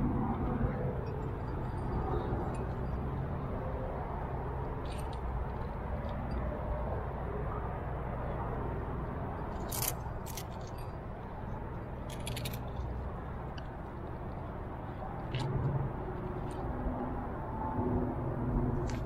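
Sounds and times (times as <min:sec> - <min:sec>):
climbing gear clinking: 0:00.9 - 0:03.4, 0:04.6 - 0:06.5, 0:09.4 - 0:14.5.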